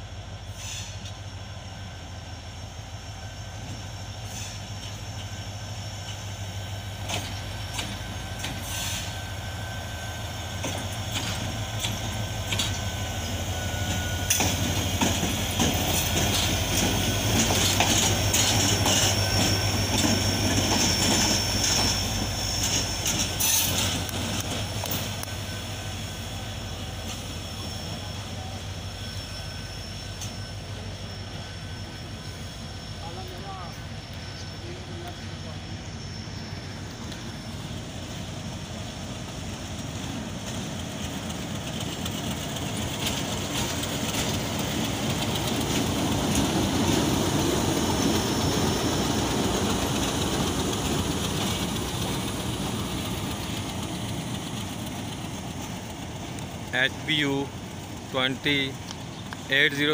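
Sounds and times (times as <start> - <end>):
locomotive engine droning: 0.0 - 59.9
faint high squeal: 0.4 - 38.8
wheels clicking over rail joints: 10.6 - 12.8, 14.3 - 21.9.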